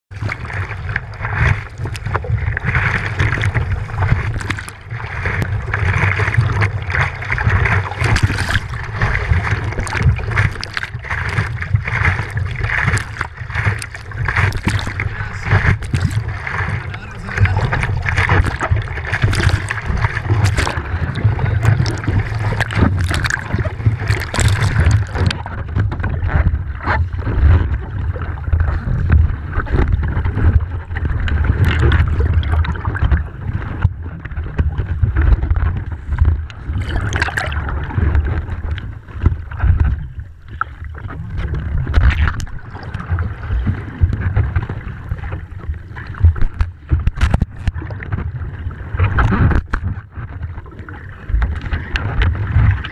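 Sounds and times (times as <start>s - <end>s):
muffled underwater churning: 0.1s - 52.9s
surf water splashing: 0.1s - 52.9s
heavy low rumble: 0.2s - 33.4s.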